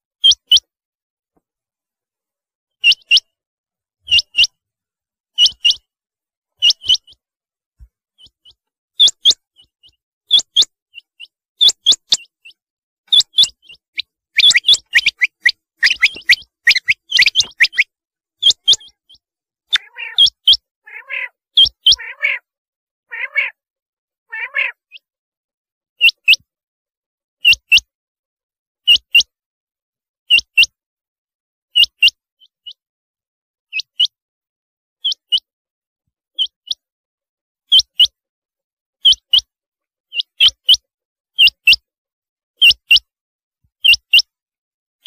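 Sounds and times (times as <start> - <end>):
lower rougher bird calls: 6.6 - 7.2, 8.1 - 22.5, 23.1 - 23.6, 24.3 - 25.1
quail calling: 6.6 - 7.2, 8.2 - 22.5, 23.1 - 23.6, 24.3 - 25.0.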